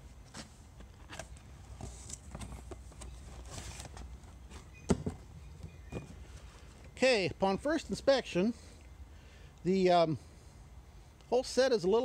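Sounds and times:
cardboard box rustling and scraping: 0:00.2 - 0:06.8.

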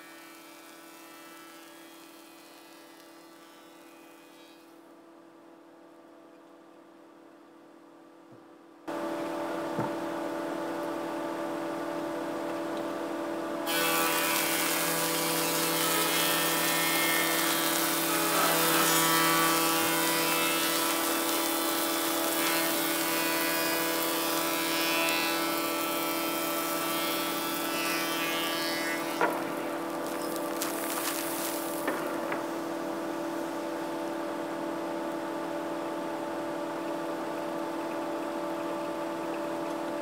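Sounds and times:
hissing wood cutting noise: 0:00.0 - 0:04.8, 0:13.6 - 0:35.9
planer motor humming: 0:13.6 - 0:34.6.

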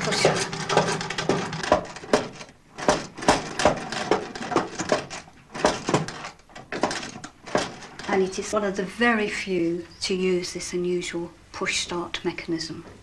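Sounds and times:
hand sewing machine clacking: 0:00.0 - 0:08.2.

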